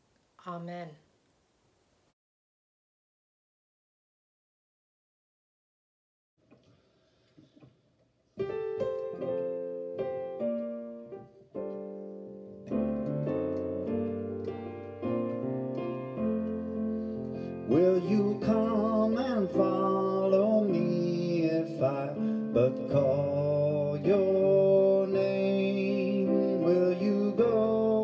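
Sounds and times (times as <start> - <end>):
piano playing slow chords: 8.4 - 28.0
man singing: 17.6 - 28.0.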